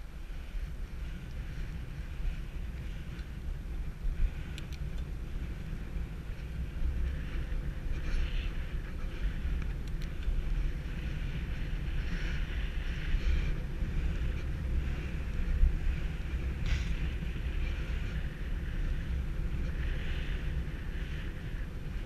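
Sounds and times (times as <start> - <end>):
wind rumble on microphone: 0.0 - 22.0
road hiss: 10.5 - 21.7.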